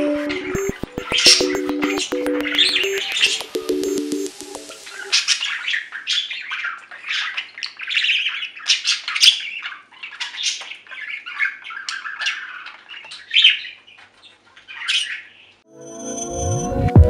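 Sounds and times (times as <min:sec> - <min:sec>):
budgerigars chirping: 0:04.8 - 0:15.6.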